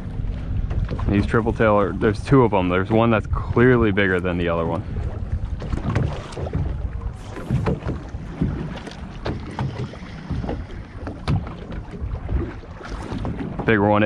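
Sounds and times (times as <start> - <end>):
low rumble: 0.0 - 14.0
small waves slapping hull: 0.0 - 14.0
wind buffeting microphone: 0.0 - 14.0.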